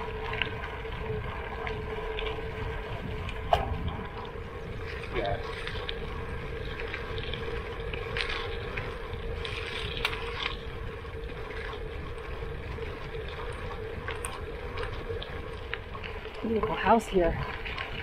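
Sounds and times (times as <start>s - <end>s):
bike tyres rolling on gravel: 0.0s - 18.0s.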